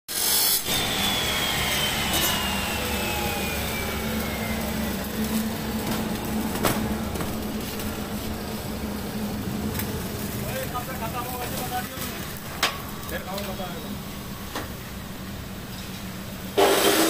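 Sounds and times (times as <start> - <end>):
high whine falling in pitch: 0.5 - 15.7
machine running with low hum: 0.6 - 13.1.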